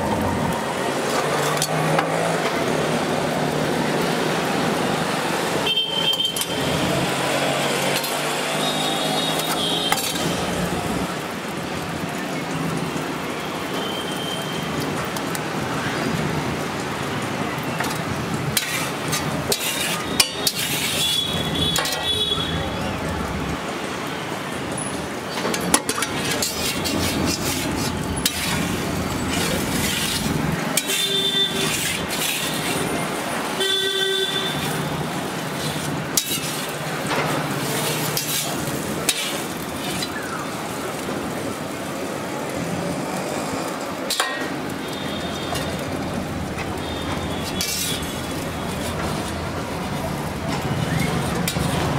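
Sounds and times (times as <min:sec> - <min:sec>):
street traffic: 0:00.0 - 0:51.9
omelette sizzling on griddle: 0:00.7 - 0:24.0, 0:24.6 - 0:51.9
vehicle horns honking: 0:05.6 - 0:06.7, 0:20.9 - 0:22.8, 0:30.8 - 0:31.8, 0:33.6 - 0:35.0.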